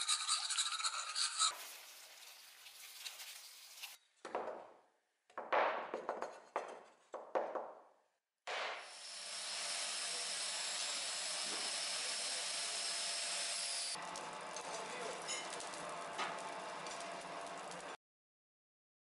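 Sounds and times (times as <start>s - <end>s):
coal forge fire hissing: 8.9s - 18.0s
burning coals crackling and popping: 14.0s - 18.0s.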